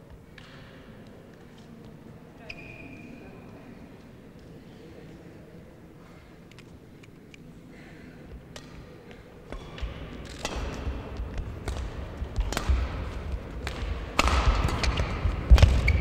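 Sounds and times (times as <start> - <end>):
racket striking shuttlecock: 9.5 - 16.0.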